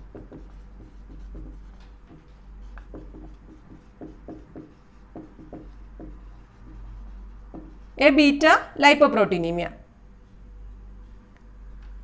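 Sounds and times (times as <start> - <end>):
marker pen writing on whiteboard: 0.0 - 8.2.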